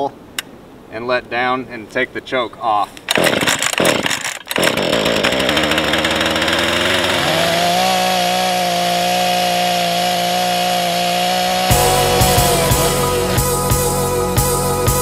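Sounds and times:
chain cutting into log: 2.9s - 11.8s
chainsaw starting and revving: 3.0s - 14.1s.

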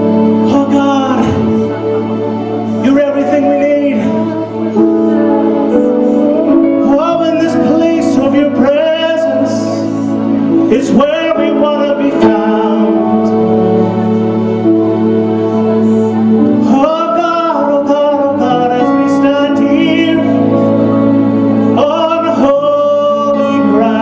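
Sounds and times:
man and woman singing: 0.0s - 13.8s
held keyboard chords: 0.0s - 24.0s.

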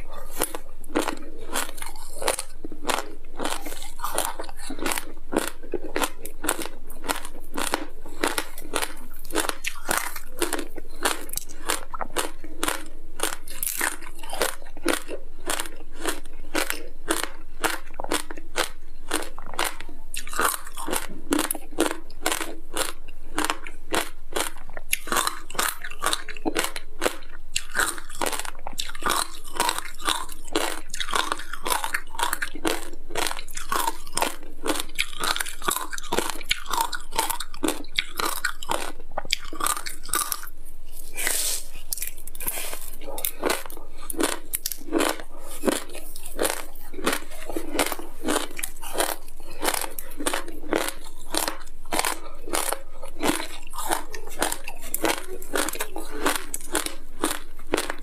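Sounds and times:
crunching frozen ice: 41.1s - 58.0s.

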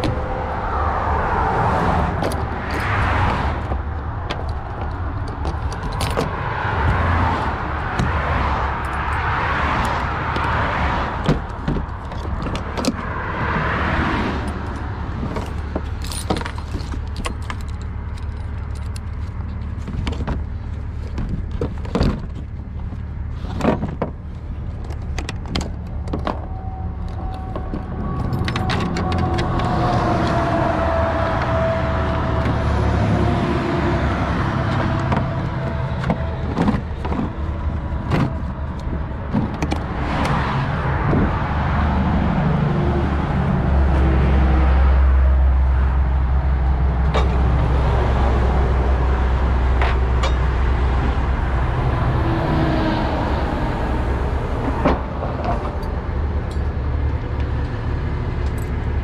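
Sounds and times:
roadside traffic: 0.0s - 59.0s
vehicle engine rumble: 0.0s - 59.0s
metal clicks and clinks: 14.4s - 19.7s.

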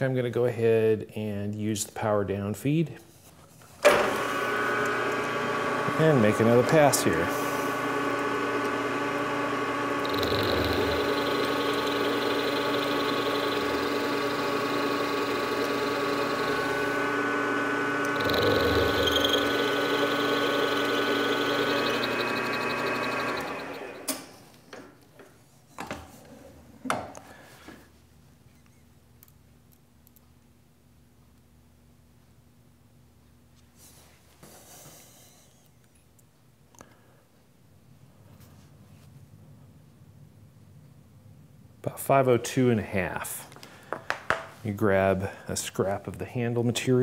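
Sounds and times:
milling machine motor whine: 3.9s - 24.2s.

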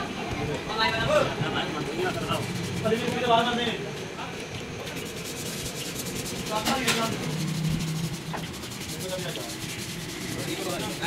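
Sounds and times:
sanding pad scrubbing wet metal: 2.1s - 3.4s, 4.9s - 11.0s.

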